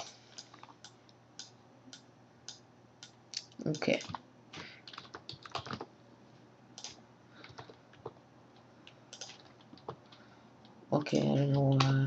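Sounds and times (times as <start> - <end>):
keyboard typing: 2.5 - 5.9, 6.8 - 12.0.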